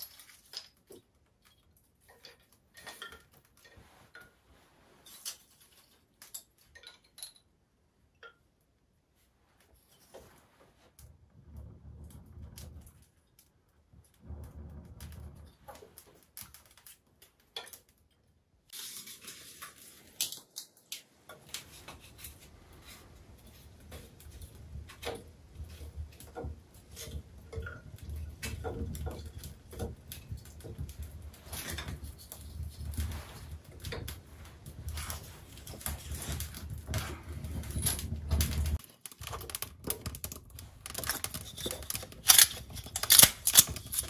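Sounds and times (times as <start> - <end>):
wood fire crackling and popping: 0.0 - 7.4, 9.4 - 44.0
kindling being handled: 0.0 - 7.5, 18.7 - 44.0.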